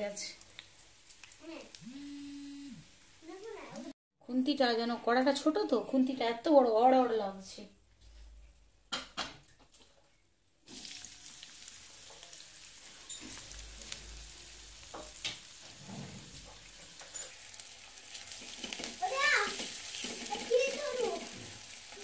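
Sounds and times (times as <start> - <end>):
onion sizzling in hot oil: 0.0 - 3.9, 10.6 - 22.0
oil spattering ticks: 0.4 - 1.4.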